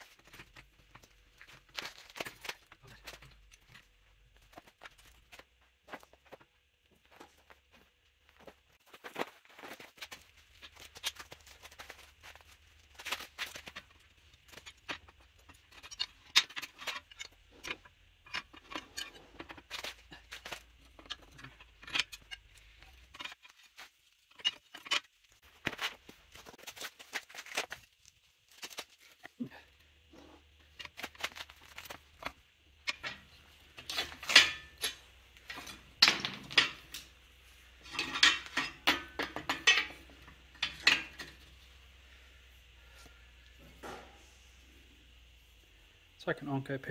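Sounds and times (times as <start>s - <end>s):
metal pins clinking: 10.5s - 25.2s, 30.7s - 41.6s.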